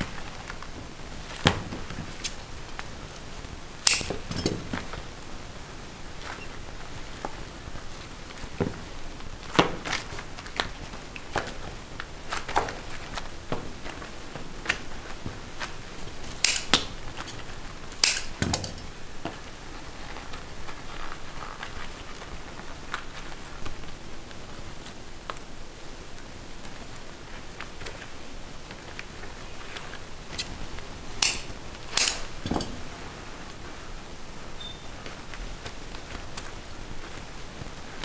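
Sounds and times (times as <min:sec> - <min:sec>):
clattering knocks: 0:32.1 - 0:32.9.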